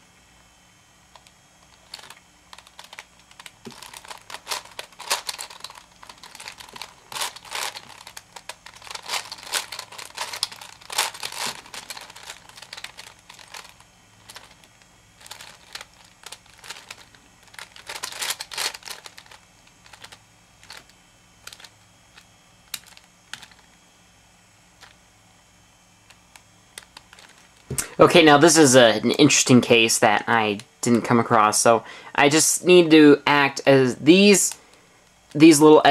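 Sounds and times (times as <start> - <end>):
puzzle cube plastic clicking: 1.1 - 23.8, 26.1 - 27.9.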